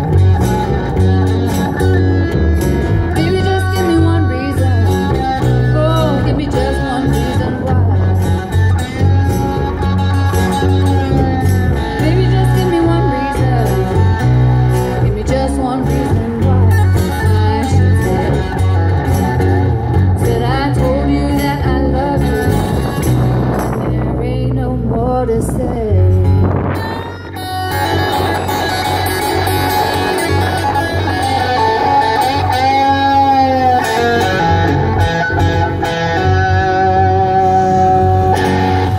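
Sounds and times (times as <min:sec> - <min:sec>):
bass line: 0:00.0 - 0:38.9
strummed acoustic guitars: 0:00.0 - 0:38.9
person singing: 0:03.1 - 0:08.5, 0:10.6 - 0:18.9, 0:20.1 - 0:23.0.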